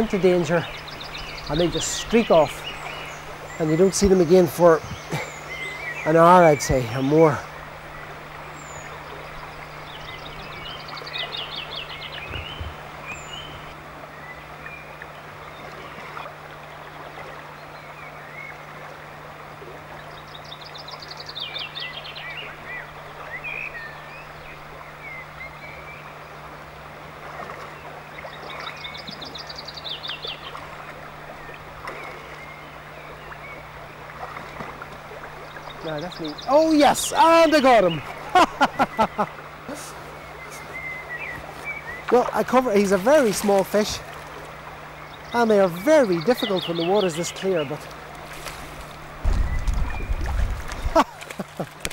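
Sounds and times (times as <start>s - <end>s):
bird singing descending phrase: 0.0s - 15.0s, 35.4s - 44.0s, 45.0s - 47.8s
river water running: 0.0s - 51.9s
songbirds chirping: 0.0s - 51.9s.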